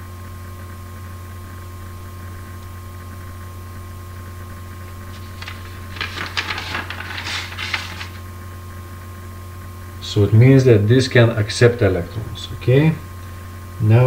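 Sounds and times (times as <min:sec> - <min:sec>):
electrical hum with high tone: 0:00.0 - 0:14.0
paper rustling and clicking: 0:05.1 - 0:08.2.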